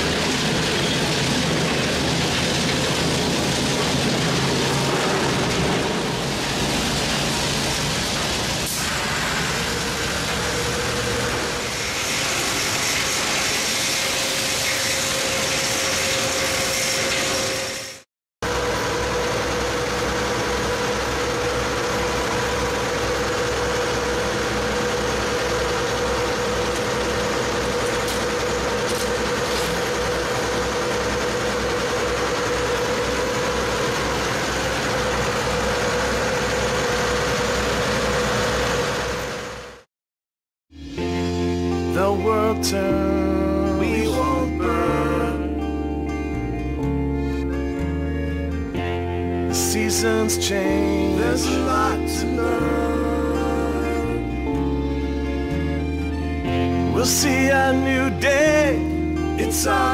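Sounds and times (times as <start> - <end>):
machinery droning: 0.0 - 39.8, 40.8 - 59.9
steady hum tone: 40.8 - 57.0.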